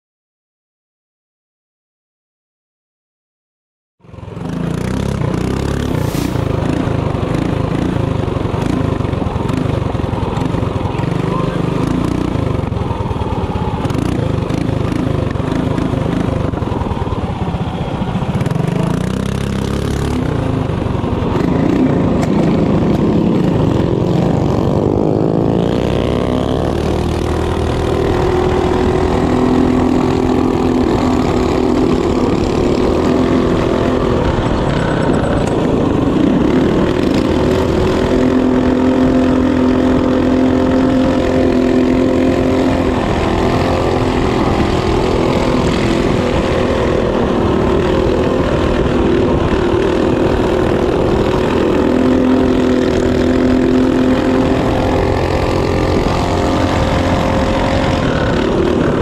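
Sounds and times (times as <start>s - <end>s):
mini bike engine revving: 4.1s - 59.0s.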